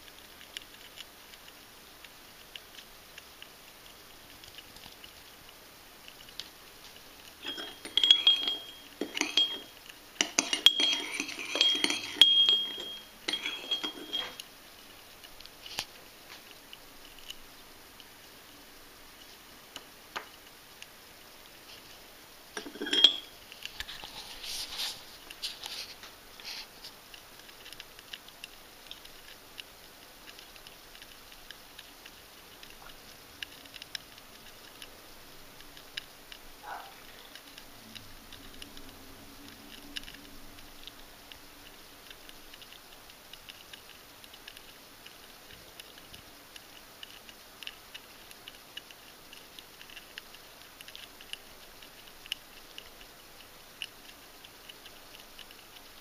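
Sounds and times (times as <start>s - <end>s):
handling noise clicks and scrapes: 6.1s - 14.5s, 22.6s - 29.3s.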